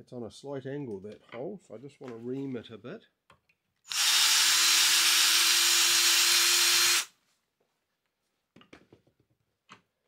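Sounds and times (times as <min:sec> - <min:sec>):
cordless drill running: 0:03.9 - 0:07.1.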